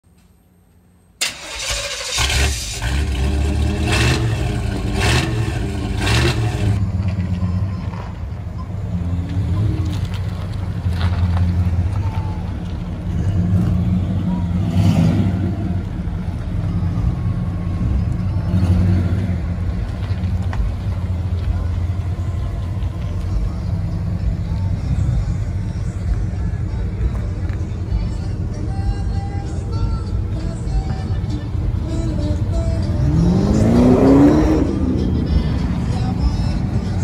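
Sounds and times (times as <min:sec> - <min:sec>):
truck engine revving: 0:01.2 - 0:06.9, 0:13.0 - 0:16.3, 0:17.6 - 0:19.7, 0:30.3 - 0:37.0.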